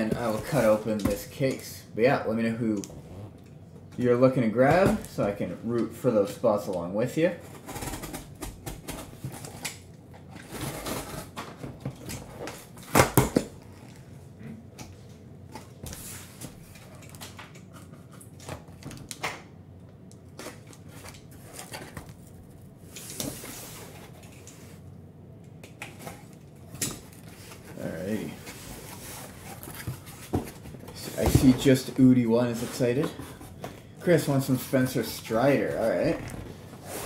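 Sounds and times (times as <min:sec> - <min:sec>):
cardboard box handling noises: 0:27.2 - 0:33.8.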